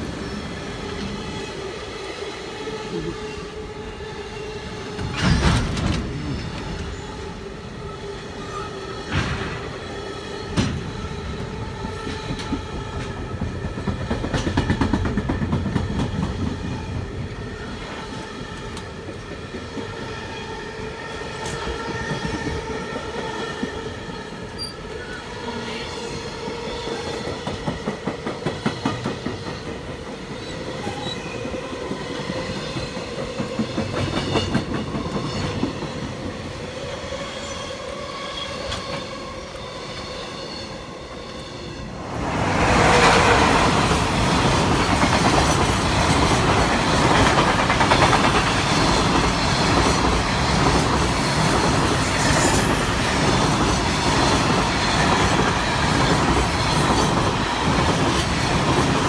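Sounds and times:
container train rumbling past: 0:00.0 - 0:59.0
train wheels clattering over rails: 0:04.9 - 0:06.9, 0:09.0 - 0:20.1, 0:27.1 - 0:36.5, 0:42.2 - 0:59.0.

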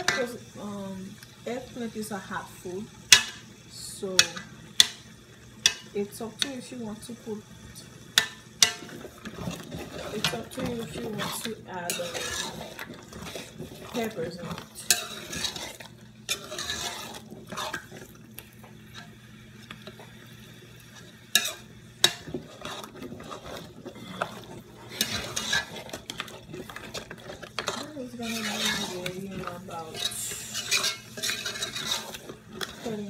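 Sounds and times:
spoon scraping a metal pot: 0:08.2 - 0:18.2, 0:20.9 - 0:33.0.

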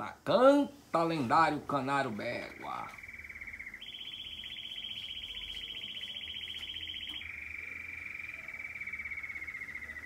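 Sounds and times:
canary singing rapid trill: 0:02.0 - 0:10.0.

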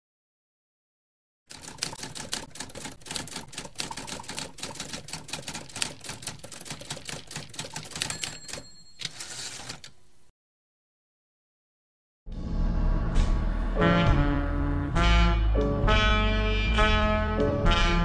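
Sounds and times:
typewriter keys clacking: 0:01.5 - 0:10.0
typewriter margin bell ringing: 0:07.6 - 0:09.9.

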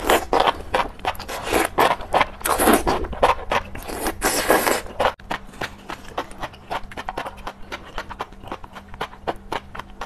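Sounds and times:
loud slurping: 0:03.8 - 0:05.2.

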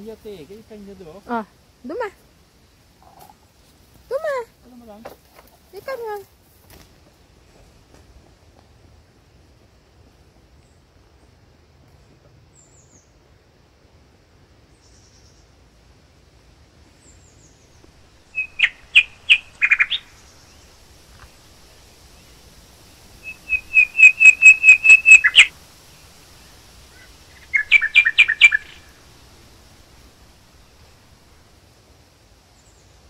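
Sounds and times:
songbird whistling rapid notes: 0:18.3 - 0:20.6, 0:23.2 - 0:25.5, 0:27.3 - 0:28.9.

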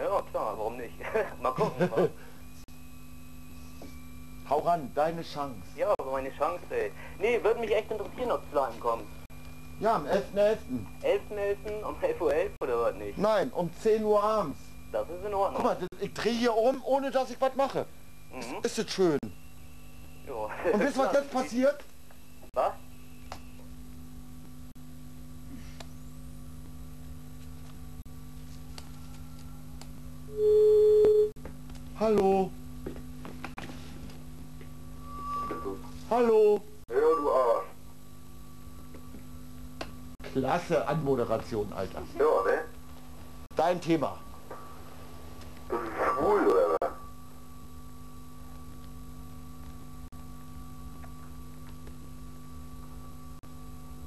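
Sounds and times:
low electrical hum: 0:00.0 - 0:54.0
telephone line tone: 0:30.3 - 0:31.4.

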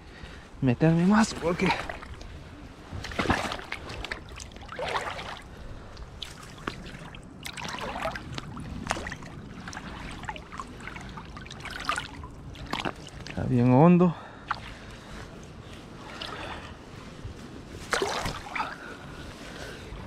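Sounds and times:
moving river water: 0:00.0 - 0:20.0
splashing around rubber boots: 0:01.3 - 0:13.5, 0:14.2 - 0:16.8, 0:17.8 - 0:18.9.

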